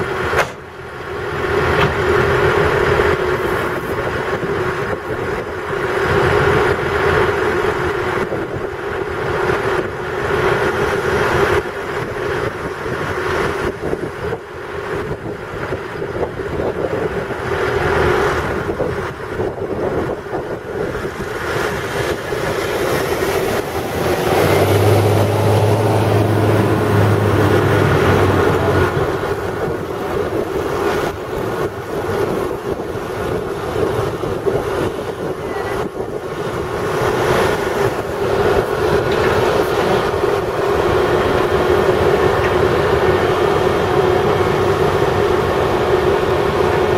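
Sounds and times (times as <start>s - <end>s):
military vehicle engines droning: 0.0s - 46.9s
wind on microphone: 0.0s - 46.9s
deep hum: 20.9s - 35.0s.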